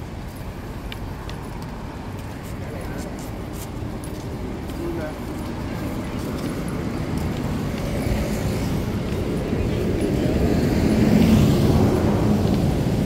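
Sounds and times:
motor vehicle passing: 5.4s - 13.0s.

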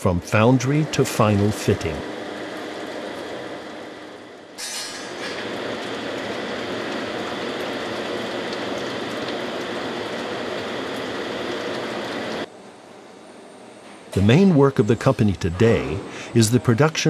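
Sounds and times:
molten iron pouring: 0.3s - 12.5s.

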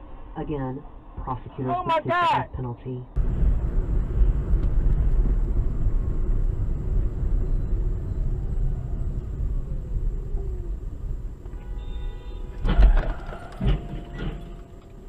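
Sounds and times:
car road and engine rumble: 3.0s - 15.0s
vehicle collision impact: 3.2s - 15.0s
horn-like tone: 11.4s - 14.8s.

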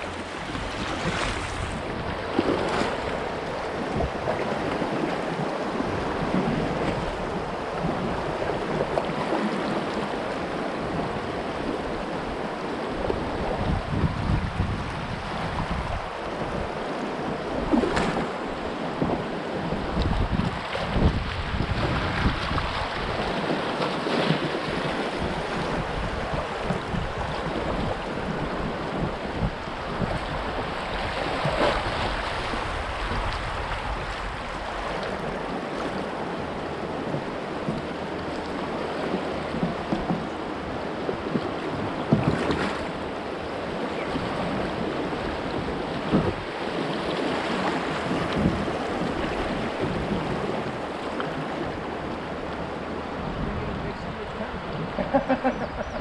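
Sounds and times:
wind buffeting microphone: 0.0s - 9.1s, 10.0s - 56.0s
river water rushing over rapids: 0.0s - 13.4s
paddle strokes splashing: 0.0s - 13.7s, 15.0s - 56.0s.

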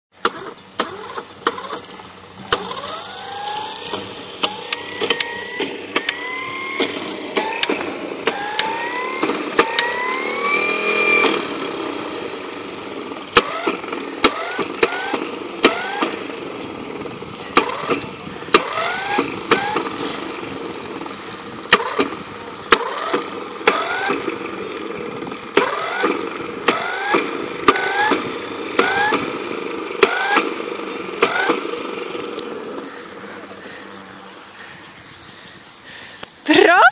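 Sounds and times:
sharp clicks: 0.2s - 10.2s, 21.7s - 24.4s
motor revving: 0.2s - 36.6s.

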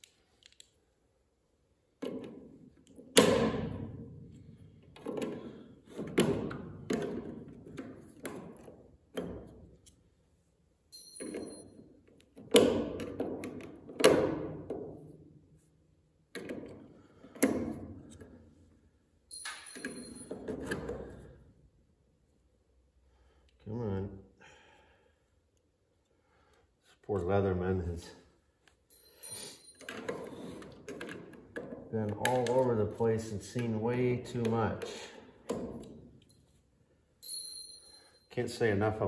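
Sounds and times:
high metallic ping: 10.9s - 11.7s, 37.2s - 38.3s.

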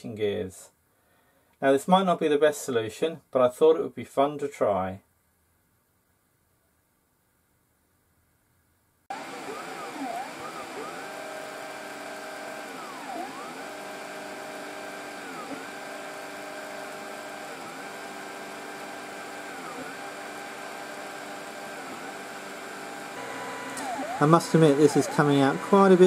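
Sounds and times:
stepper motors whining: 9.1s - 26.0s.

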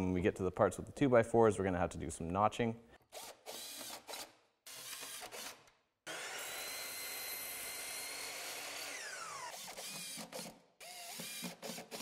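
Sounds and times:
mitre saw whining cutting wood: 6.1s - 10.4s
impact driver driving screw: 6.6s - 12.0s.

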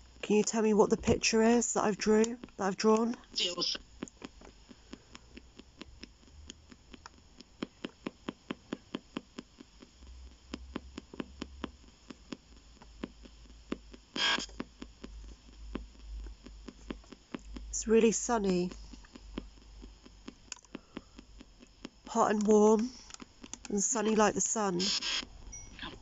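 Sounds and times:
radio scanner clicking: 0.4s - 8.4s, 22.0s - 26.0s
burst of radio sound: 3.3s - 3.8s.

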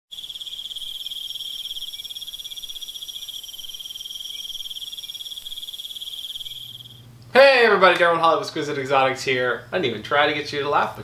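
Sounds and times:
crickets chirping: 0.1s - 7.6s.

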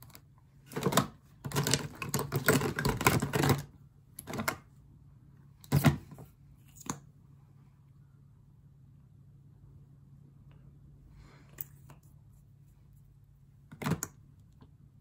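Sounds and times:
makeup containers clicking and clattering: 0.1s - 4.6s.

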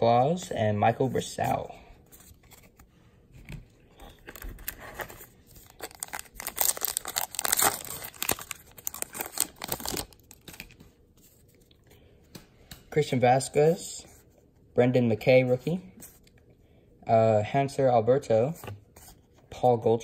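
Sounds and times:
wrapper tearing and crinkling: 4.2s - 10.8s.

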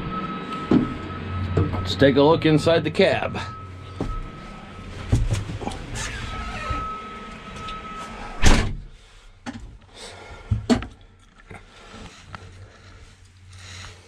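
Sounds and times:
steady high tone: 0.0s - 8.6s
tractor cab door slamming: 8.4s - 8.9s.

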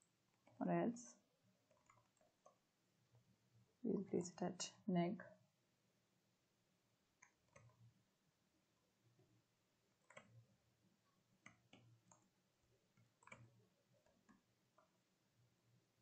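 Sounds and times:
computer keyboard typing: 1.7s - 2.6s, 7.2s - 7.8s, 10.0s - 10.4s, 11.4s - 12.3s, 13.0s - 14.9s.

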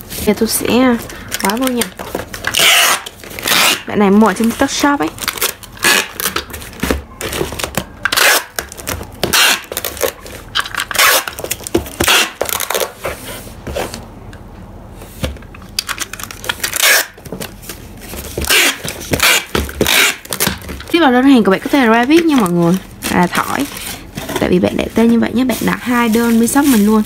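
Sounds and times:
packing tape pulled from dispenser: 2.4s - 3.9s, 9.3s - 10.2s, 10.8s - 11.4s, 15.8s - 17.2s, 18.4s - 20.5s.

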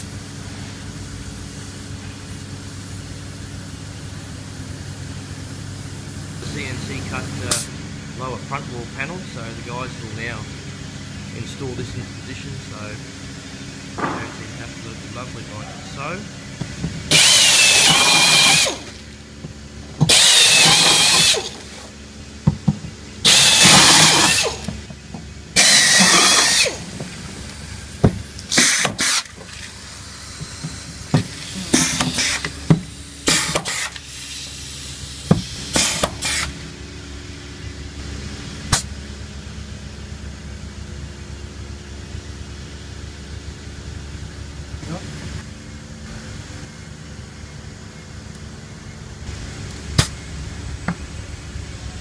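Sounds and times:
pneumatic drill whining: 16.6s - 22.0s, 22.7s - 36.7s
rivet gun pops and hisses: 35.4s - 36.5s.

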